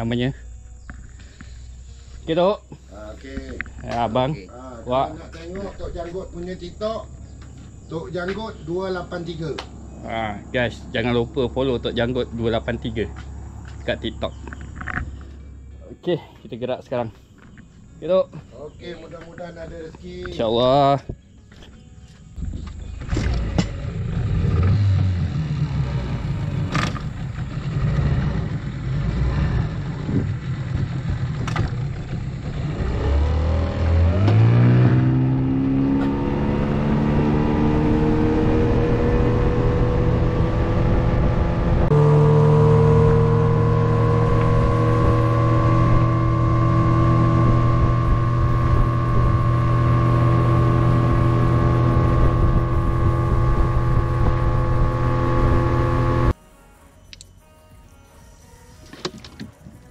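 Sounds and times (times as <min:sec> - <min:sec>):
outboard motor running: 0:42.0 - 0:56.3.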